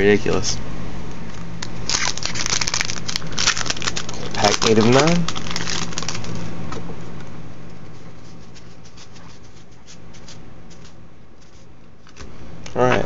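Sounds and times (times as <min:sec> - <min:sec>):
steady low hum: 0:00.0 - 0:13.0
cards clicking and rustling: 0:01.9 - 0:06.4.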